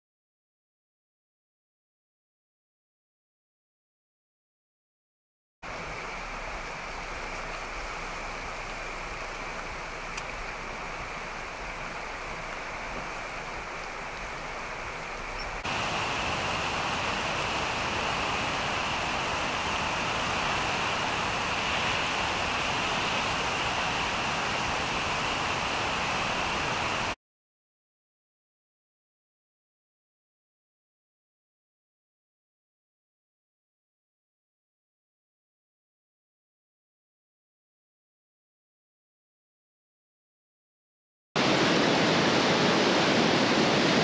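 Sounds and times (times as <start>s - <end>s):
floodwater rushing: 5.7s - 27.2s, 41.4s - 44.0s.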